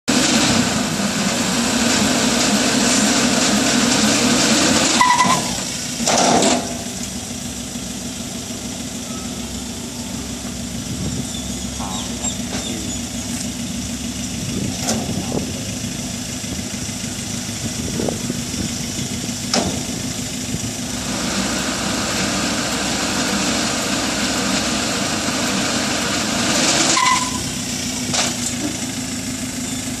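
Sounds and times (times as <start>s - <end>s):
pickup engine running: 0.1s - 30.0s
clanks: 2.3s - 7.2s, 11.6s - 15.8s, 17.3s - 20.3s, 26.4s - 29.0s
short high beep: 26.9s - 27.6s.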